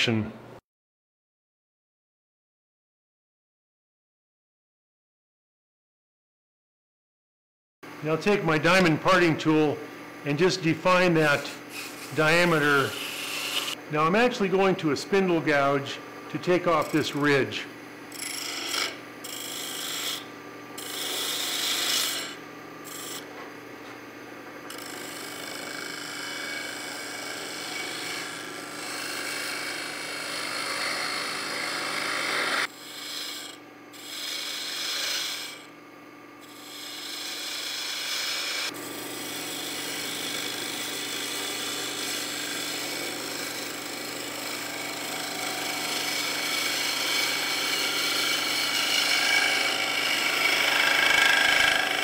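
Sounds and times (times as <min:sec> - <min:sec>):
wood lathe humming: 0:08.2 - 0:23.4, 0:24.7 - 0:35.7, 0:36.4 - 0:52.0
gouge cutting wood scraping hiss: 0:10.8 - 0:13.8, 0:25.9 - 0:35.7, 0:36.5 - 0:52.0.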